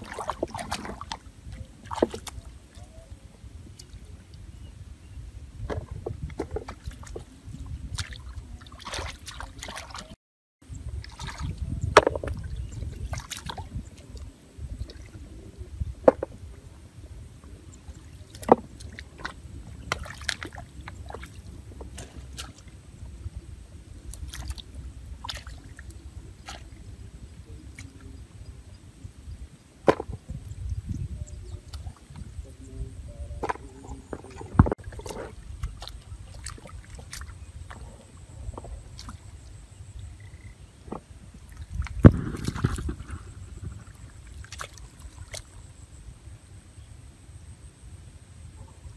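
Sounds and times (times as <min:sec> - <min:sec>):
muddy water sloshing: 0:00.0 - 0:04.3, 0:05.6 - 0:10.2, 0:10.8 - 0:28.8, 0:29.8 - 0:45.8
sharp splashes: 0:07.9 - 0:10.2, 0:11.0 - 0:11.6, 0:25.2 - 0:26.8, 0:34.8 - 0:37.4, 0:41.5 - 0:45.6.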